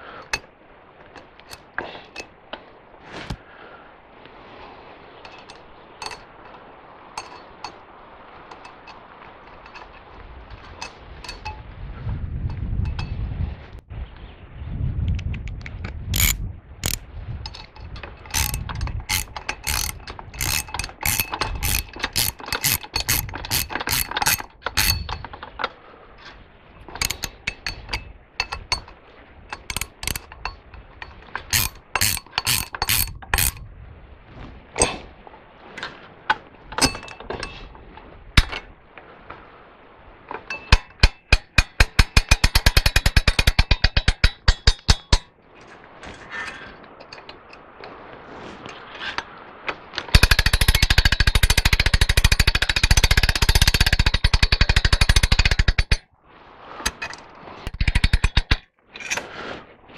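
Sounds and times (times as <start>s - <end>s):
winch ratchet clicking: 16.1s - 25.7s, 27.0s - 33.6s, 40.5s - 45.2s, 50.1s - 56.0s.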